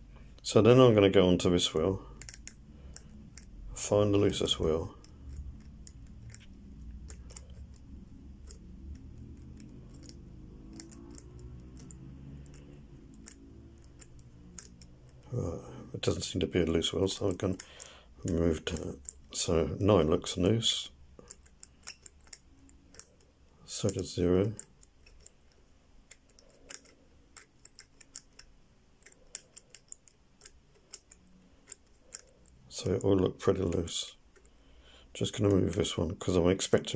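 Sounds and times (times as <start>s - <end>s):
faint low hum: 0.0s - 36.9s
padlock number wheel clicking: 2.0s - 15.4s, 16.8s - 19.8s, 21.2s - 33.0s.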